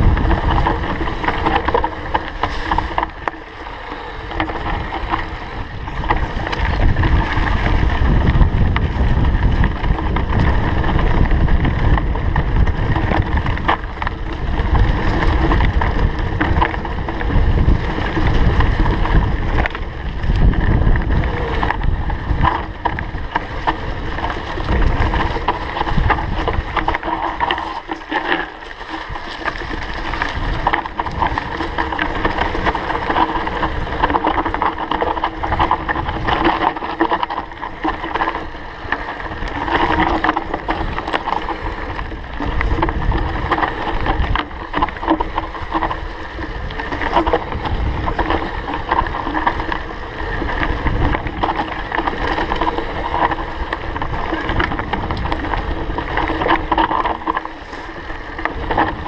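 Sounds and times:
bike knocks and rattles: 0.0 - 59.0
tyres rumbling on dirt trail: 0.0 - 59.0
wind buffeting microphone: 0.0 - 59.0.

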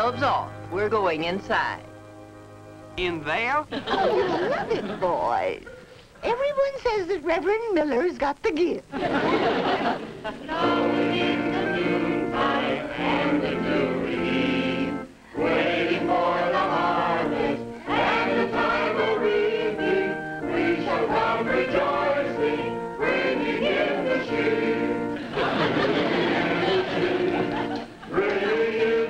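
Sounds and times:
congregation singing a hymn: 9.3 - 29.0.

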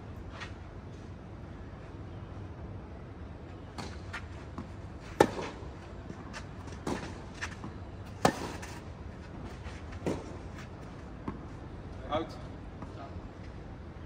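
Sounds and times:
tennis ball struck with rackets: 3.7 - 5.7, 6.7 - 8.8, 10.0 - 10.4.

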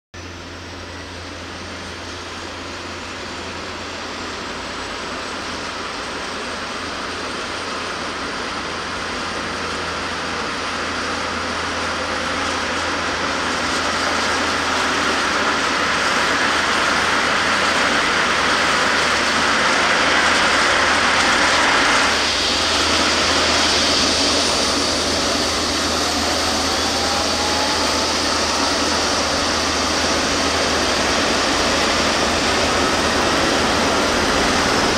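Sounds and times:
helicopter turbines whining: 0.2 - 34.9.

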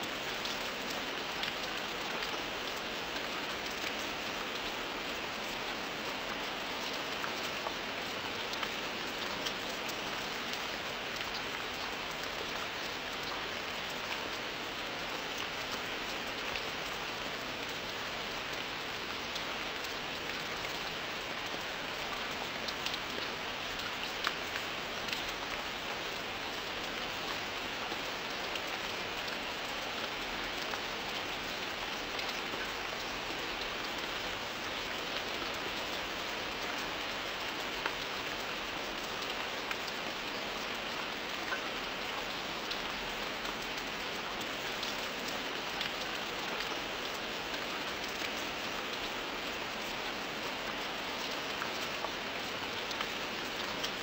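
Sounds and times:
steady rain hiss: 0.0 - 54.0
raindrop ticks: 22.2 - 27.7.

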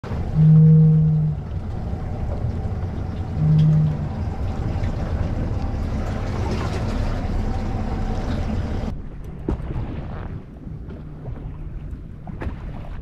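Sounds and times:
motorboat engine rumble: 0.0 - 13.0
wind and water noise: 0.0 - 13.0
low horn blast: 0.1 - 9.0.

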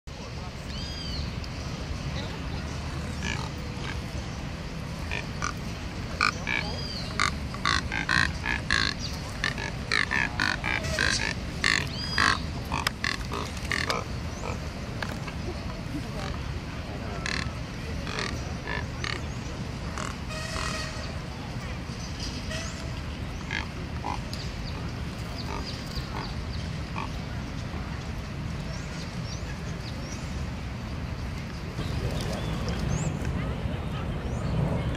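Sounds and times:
steady low rumble: 0.1 - 34.9
small birds chirping: 0.7 - 15.5, 21.8 - 27.6
cormorants grunting croaks: 5.1 - 5.6, 6.2 - 14.7, 17.2 - 19.3, 19.9 - 21.0, 23.4 - 24.3.

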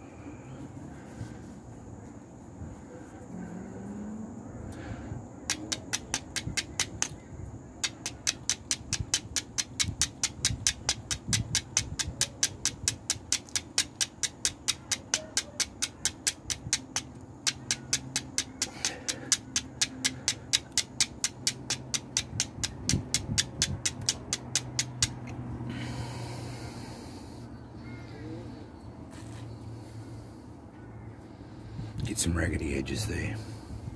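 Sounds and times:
flint scraping steel striker: 5.5 - 7.2, 7.8 - 25.4.

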